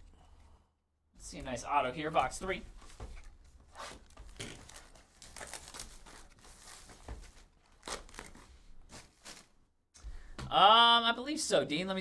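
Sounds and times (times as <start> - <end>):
cardboard wrapping crinkling and tearing: 3.7 - 9.6.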